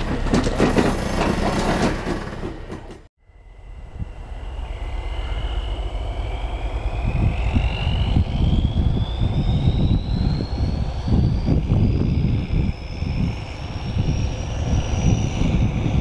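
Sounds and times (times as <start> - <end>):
diesel locomotive rumble: 0.0 - 16.0
high whine rising in pitch: 3.2 - 16.0.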